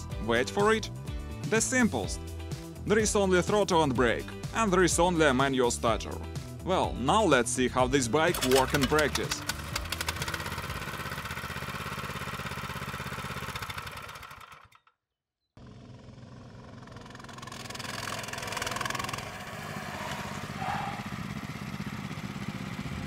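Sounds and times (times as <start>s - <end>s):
mini bike engine idling: 8.3s - 14.9s, 15.6s - 19.7s, 20.3s - 23.0s
mini bike engines riding by: 15.9s - 23.0s.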